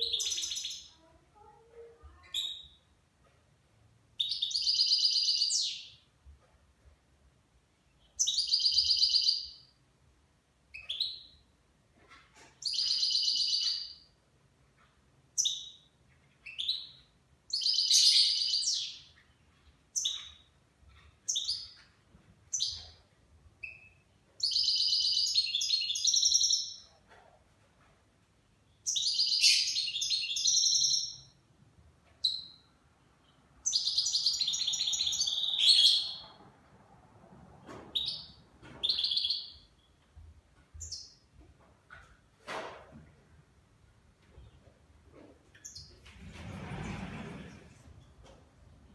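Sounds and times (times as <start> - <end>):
goldfinch singing: 33.6 - 36.3.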